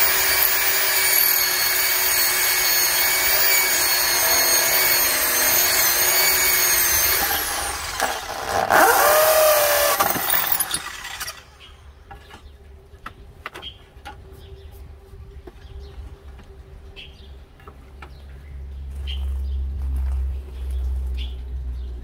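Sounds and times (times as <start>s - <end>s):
electric drill whining: 0.0s - 11.6s.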